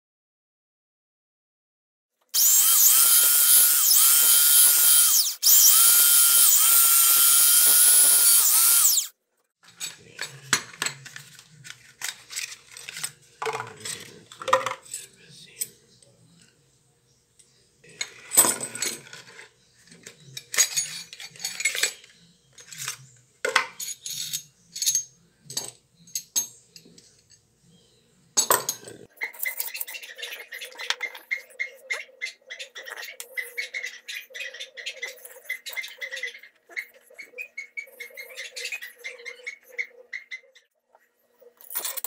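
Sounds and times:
metal parts clinking on workbench: 22.6s - 26.5s, 41.6s - 42.0s.

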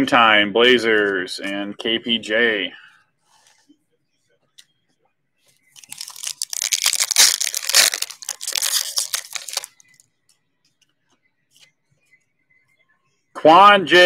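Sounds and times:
foil wrapper crinkling: 5.8s - 9.9s.

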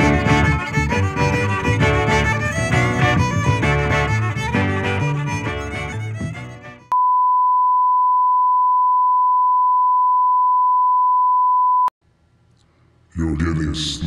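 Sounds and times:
string music: 0.0s - 6.9s.

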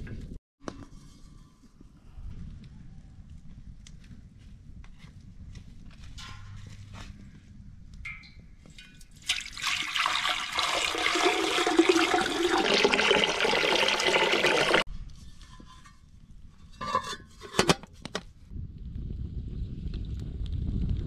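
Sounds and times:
water pouring: 9.1s - 14.9s.

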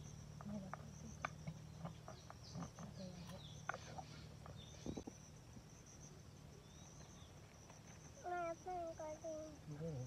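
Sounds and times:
high insect drone: 0.0s - 10.0s.

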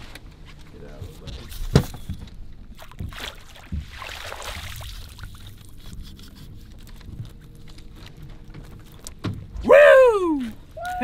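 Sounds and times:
water splashing: 2.7s - 6.1s
water running off net: 2.8s - 5.8s.

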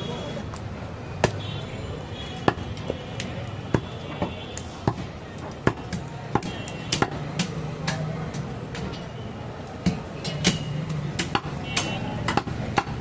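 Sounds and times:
cleaver chopping meat on wood: 1.2s - 1.4s, 2.4s - 2.8s, 3.7s - 8.9s, 9.8s - 13.0s.

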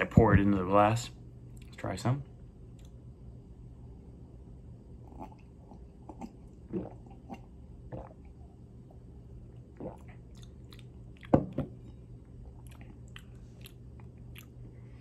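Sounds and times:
faint room hum: 0.0s - 15.0s
man drinking from a glass: 6.1s - 8.3s.

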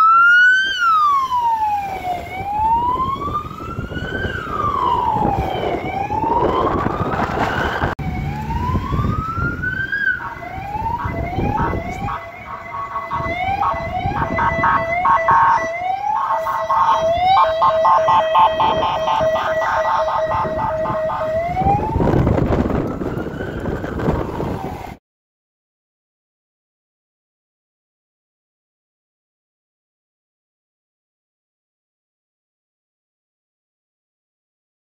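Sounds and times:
electronic siren wailing and pulsing: 0.0s - 25.0s
road traffic rumble: 0.0s - 25.0s.

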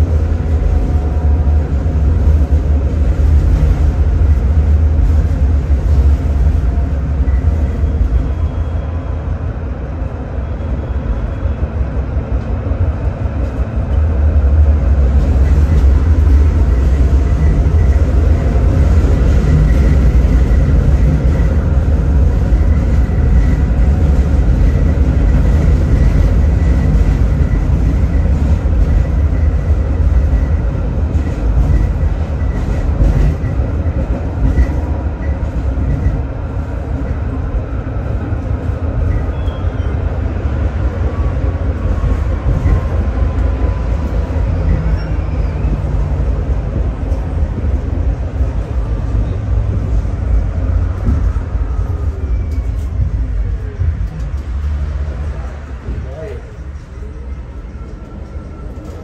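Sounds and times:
tram rumbling: 0.0s - 59.0s.

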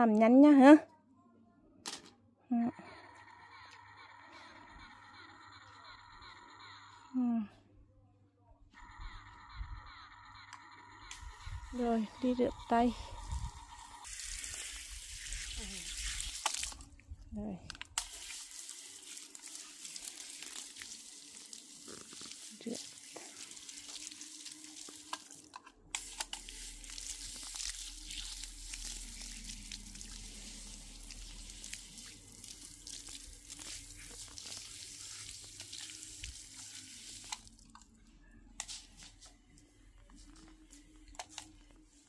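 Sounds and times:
hose spraying water on plants: 14.0s - 16.8s, 18.0s - 25.4s, 26.0s - 37.6s.

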